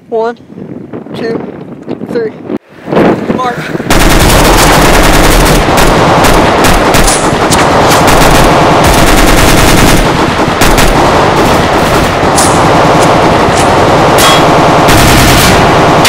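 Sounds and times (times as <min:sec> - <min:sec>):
automatic rifle gunfire: 0:03.9 - 0:16.0.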